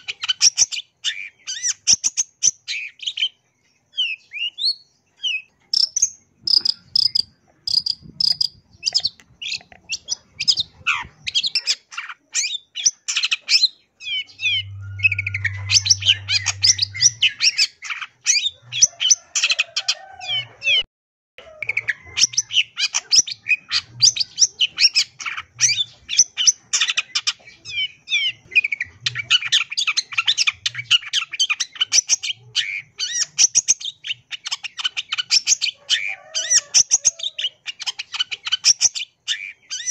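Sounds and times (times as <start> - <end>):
bird singing chattering trills: 0.0 - 19.8.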